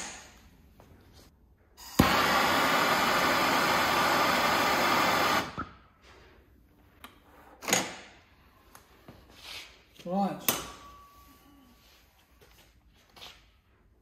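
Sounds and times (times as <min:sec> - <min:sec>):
gas torch hissing: 0:01.8 - 0:05.6.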